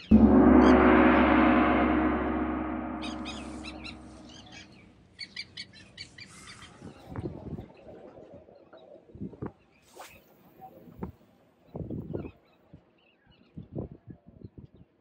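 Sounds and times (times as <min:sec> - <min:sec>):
gong ringing: 0:00.0 - 0:04.6.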